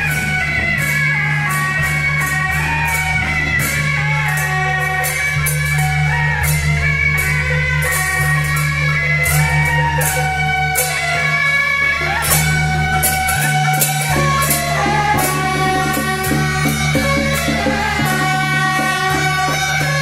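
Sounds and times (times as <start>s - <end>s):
hand cymbals crashing: 0.0s - 20.0s
reedy horn melody: 13.4s - 20.0s.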